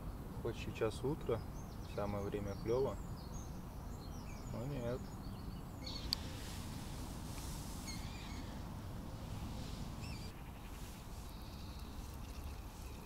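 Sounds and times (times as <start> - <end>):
bird chirps: 1.2 - 6.4, 7.8 - 8.6, 9.6 - 13.0.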